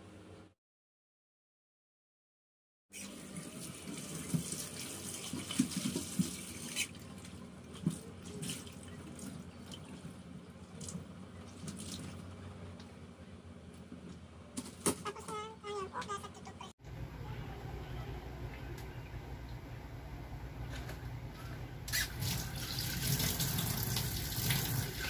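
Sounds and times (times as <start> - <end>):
washcloth wrung out: 21.9 - 25.0
water splashing into steel sink: 21.9 - 25.0.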